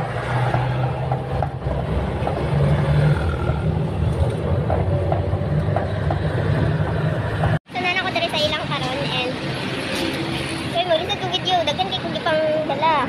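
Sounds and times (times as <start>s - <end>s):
road noise: 0.0s - 13.0s
vehicle engine hum: 0.0s - 13.0s.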